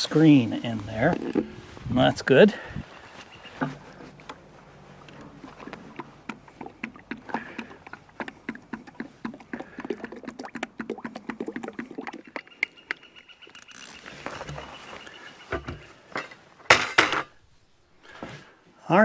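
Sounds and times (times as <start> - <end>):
oil glugging from bucket: 1.0 - 1.7, 4.8 - 13.0.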